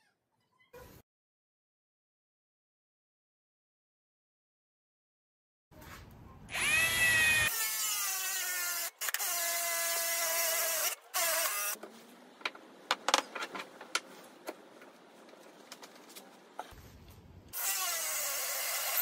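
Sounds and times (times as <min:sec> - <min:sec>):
cordless drill boring into wood: 0:06.5 - 0:11.8, 0:17.6 - 0:19.0.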